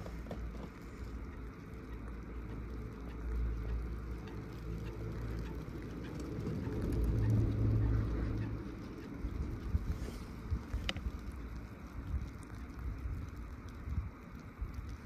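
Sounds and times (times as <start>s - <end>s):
chairlift low rumble: 0.0s - 15.0s.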